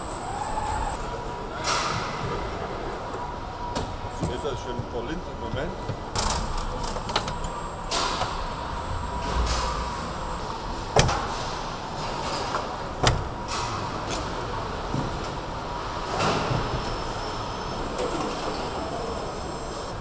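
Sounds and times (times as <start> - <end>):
mechanical hum with faint whine: 0.0 - 20.0.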